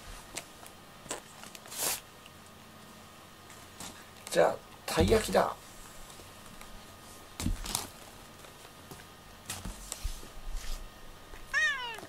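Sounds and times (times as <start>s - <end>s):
cat meowing: 11.5s - 12.0s.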